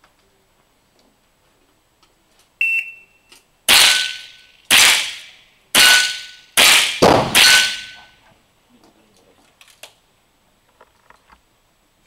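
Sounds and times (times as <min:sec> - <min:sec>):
shot timer beep: 0:02.6 - 0:03.2
steel plate ringing when hit: 0:03.7 - 0:04.5, 0:05.8 - 0:06.5, 0:07.3 - 0:08.1
rifle shots: 0:03.7 - 0:08.0.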